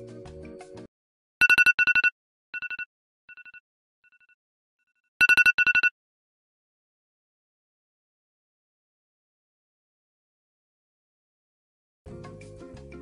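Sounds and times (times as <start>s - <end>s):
background music: 0.0s - 0.9s, 12.1s - 13.0s
electronic trilled ringing: 1.4s - 4.4s, 5.2s - 5.9s.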